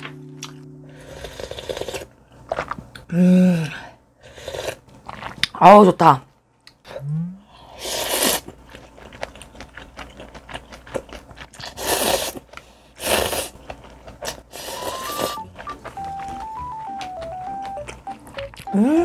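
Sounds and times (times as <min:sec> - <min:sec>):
simple stepping tune: 0:00.0 - 0:01.4, 0:14.6 - 0:19.0
noodles being slurped: 0:07.8 - 0:08.6, 0:09.4 - 0:15.6
wet chewing clicks: 0:08.7 - 0:18.8.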